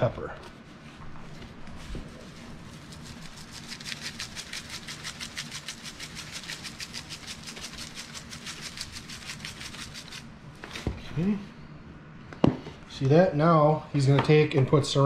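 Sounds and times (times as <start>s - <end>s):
shaker bottle rattling: 2.6s - 10.3s.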